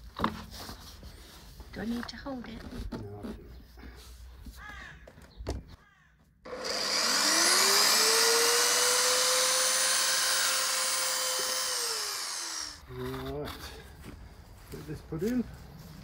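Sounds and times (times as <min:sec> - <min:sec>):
band saw cutting plastic pipe: 0:06.5 - 0:12.8.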